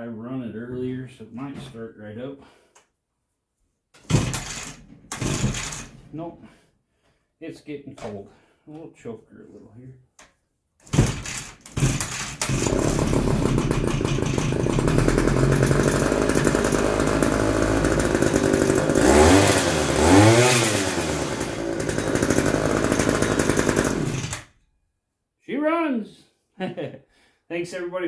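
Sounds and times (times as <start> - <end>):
scooter engine running and revving: 12.4 - 24.4.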